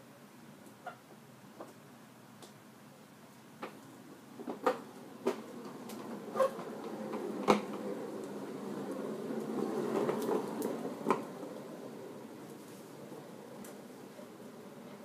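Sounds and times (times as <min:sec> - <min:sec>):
plastic toy wheels rolling on concrete: 0:03.6 - 0:15.0.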